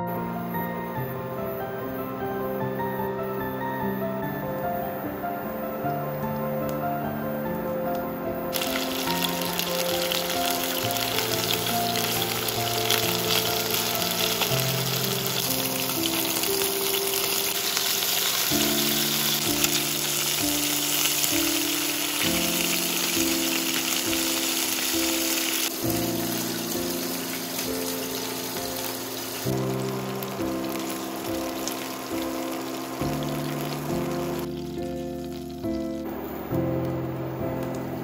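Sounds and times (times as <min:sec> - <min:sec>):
pork sizzling in frying pan: 0:08.5 - 0:38.0.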